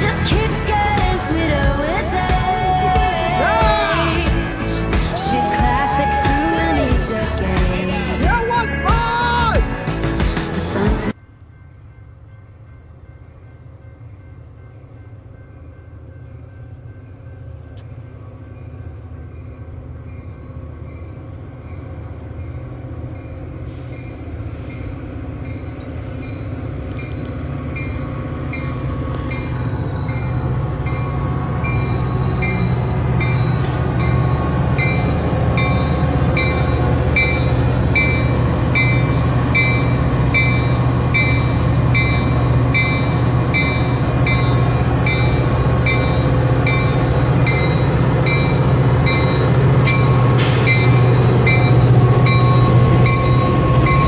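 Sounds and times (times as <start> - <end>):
diesel locomotive engine drone: 0.0 - 54.0
bell ringing: 27.8 - 54.0.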